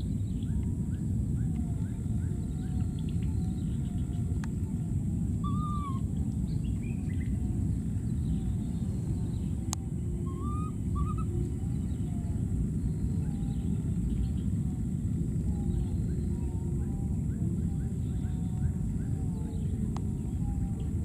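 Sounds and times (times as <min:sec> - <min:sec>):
low rumbling noise: 0:00.0 - 0:21.0
faint animal calls: 0:01.4 - 0:14.8.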